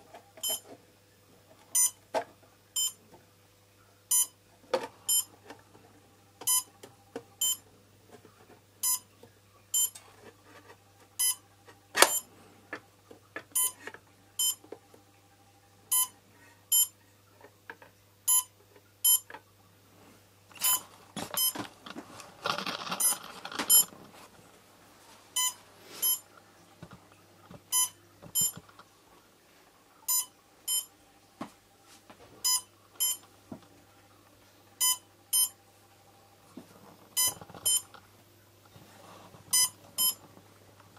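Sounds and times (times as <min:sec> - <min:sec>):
faint steady hum: 0:00.0 - 0:40.9
short electronic beeps: 0:00.4 - 0:00.6, 0:15.9 - 0:16.1, 0:16.7 - 0:16.9, 0:18.3 - 0:19.2, 0:25.4 - 0:26.2, 0:27.7 - 0:28.6, 0:30.1 - 0:30.9, 0:32.5 - 0:33.2, 0:34.8 - 0:35.6, 0:39.6 - 0:40.2
handling rustle: 0:20.6 - 0:24.4.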